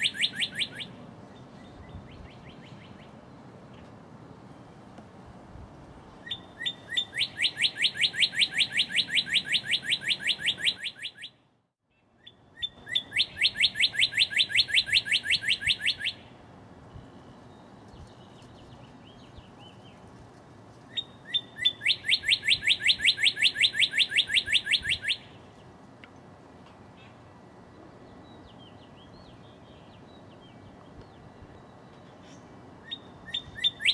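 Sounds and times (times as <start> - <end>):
cardinal singing whistles: 0.0 - 1.0, 6.2 - 11.4, 12.2 - 18.4, 20.9 - 25.4, 32.8 - 33.9.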